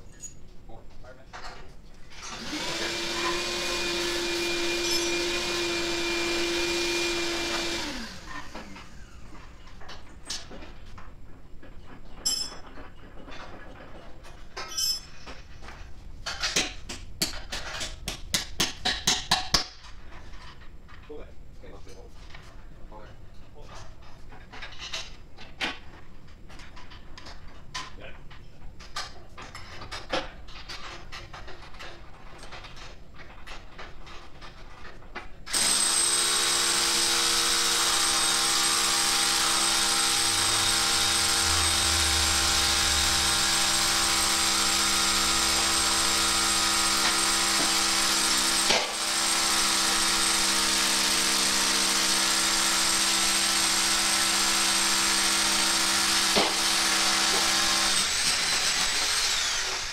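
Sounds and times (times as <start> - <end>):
power tool motor running: 2.2 - 9.3, 35.5 - 59.9
tools clicking and tapping: 16.2 - 20.6.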